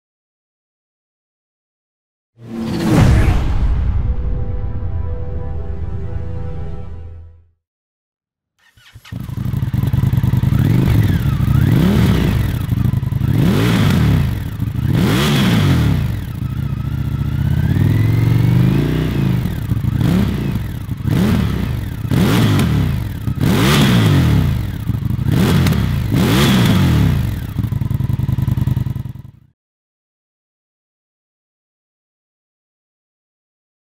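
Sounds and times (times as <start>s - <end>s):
motorcycle engine revving: 8.6s - 29.5s.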